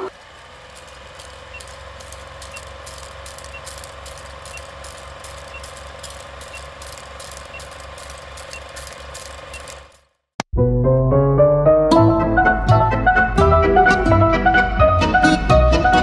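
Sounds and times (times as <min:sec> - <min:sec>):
film projector clatter: 0:00.0 - 0:10.2.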